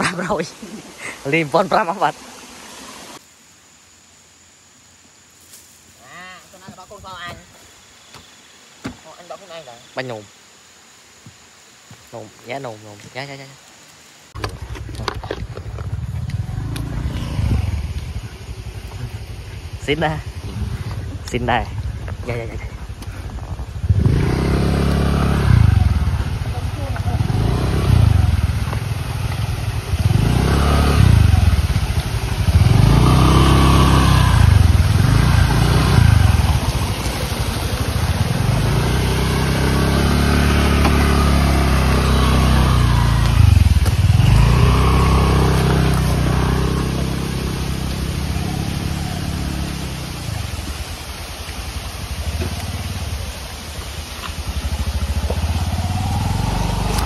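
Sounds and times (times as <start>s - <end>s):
motorcycle engine revving: 14.4s - 50.9s, 51.8s - 57.0s.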